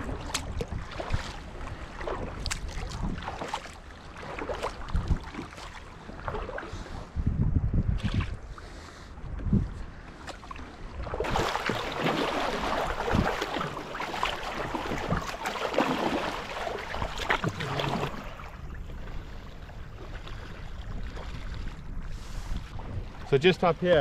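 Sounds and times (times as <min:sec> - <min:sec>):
paddle strokes splashing: 0:00.0 - 0:07.1, 0:07.9 - 0:24.0
water rushing along hull: 0:00.0 - 0:24.0
wind rumbling on microphone: 0:00.0 - 0:24.0.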